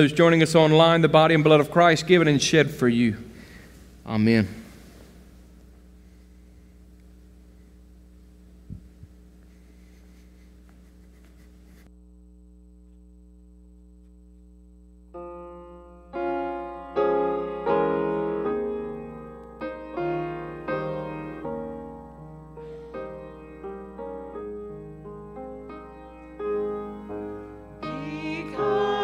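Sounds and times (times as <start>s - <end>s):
steady low hum: 0.0s - 29.0s
piano chords: 15.1s - 29.0s.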